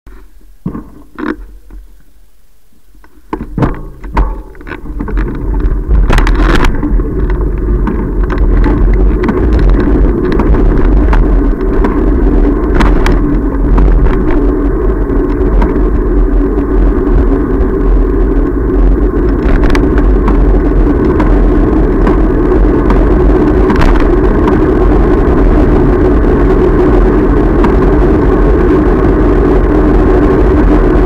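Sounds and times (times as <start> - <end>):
wind and road rumble: 0.1 - 31.0
knocks and clicks: 3.3 - 14.5, 19.3 - 24.7.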